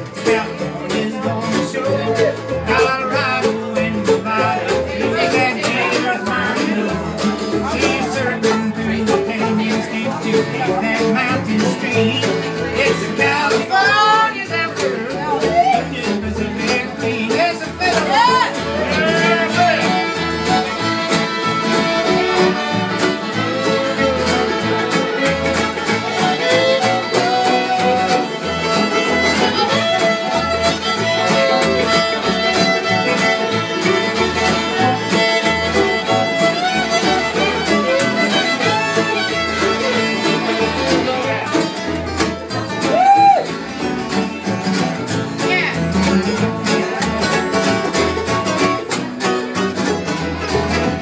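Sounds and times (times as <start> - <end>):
banjo: 0.0 - 51.0
guitars: 0.0 - 51.0
mandolin: 0.0 - 51.0
upright bass: 0.0 - 51.0
fiddles playing melody: 4.5 - 51.0.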